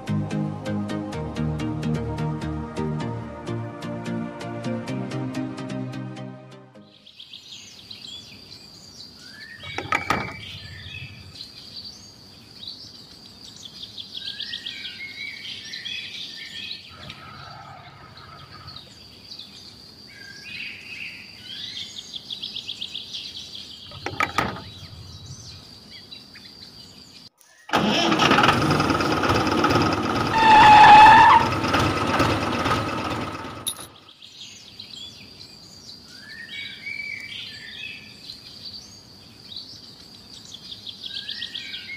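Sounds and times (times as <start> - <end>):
small birds chirping: 6.8 - 27.7, 33.7 - 41.9.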